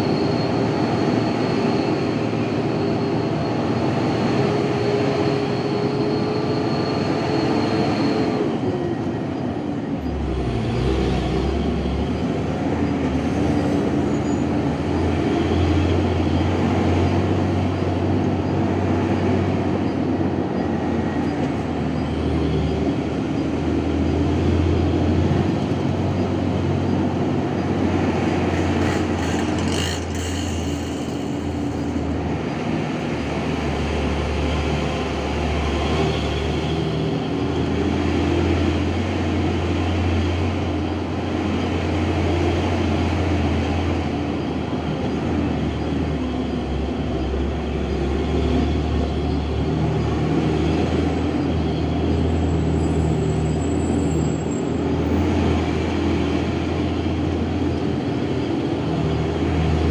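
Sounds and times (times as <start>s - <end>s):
road noise: 0.0s - 59.9s
vehicle engine hum: 0.0s - 59.9s.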